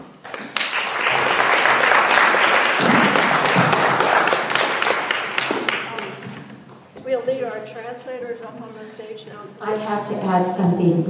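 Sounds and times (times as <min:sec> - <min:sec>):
audience applauding: 0:00.2 - 0:06.5.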